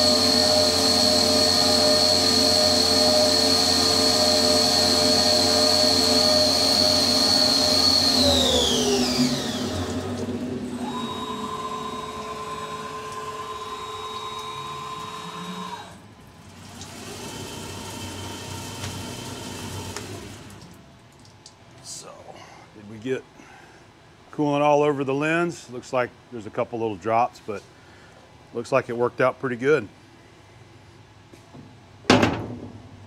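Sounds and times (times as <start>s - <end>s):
mill spindle whining: 0.0s - 20.7s
low machine whine: 0.0s - 21.0s
coolant flowing: 0.0s - 22.0s.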